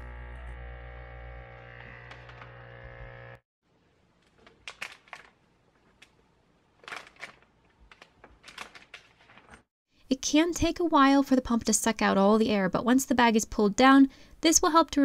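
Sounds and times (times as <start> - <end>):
steady hum: 0.0 - 3.4
rubber tubing clicks and rustles: 4.2 - 6.2, 6.8 - 9.7
plastic film crinkling: 4.3 - 9.7.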